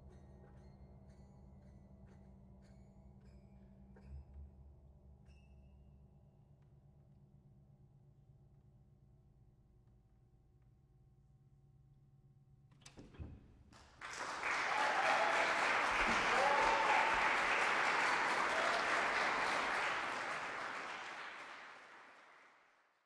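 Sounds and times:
audience applauding: 13.9s - 22.9s
audience whooping: 14.1s - 22.5s.

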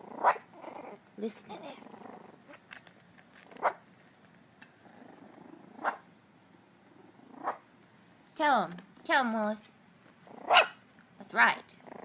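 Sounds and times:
puppies growling softly: 0.0s - 3.8s, 4.6s - 7.8s, 10.1s - 10.6s, 11.7s - 12.0s
puppy yaps: 0.2s - 1.0s, 3.6s - 3.8s, 5.8s - 6.0s, 10.4s - 10.8s.

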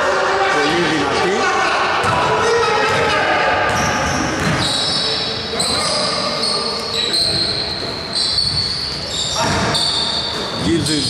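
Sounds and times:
players' voices: 0.0s - 8.4s, 9.0s - 11.0s
sneaker squeaks: 2.8s - 11.0s.

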